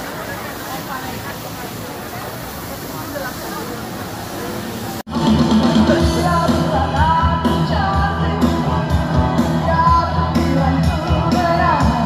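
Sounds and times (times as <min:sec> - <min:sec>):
pop-rock song with vocals: 0:05.1 - 0:12.0.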